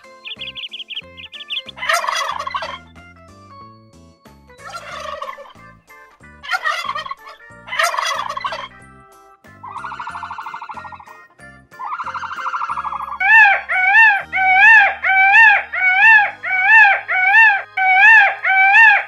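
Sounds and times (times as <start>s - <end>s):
fowl calling harshly: 0.0s - 2.9s, 4.6s - 5.6s, 6.4s - 8.7s, 9.6s - 11.0s, 11.8s - 19.0s
background music: 0.0s - 19.0s.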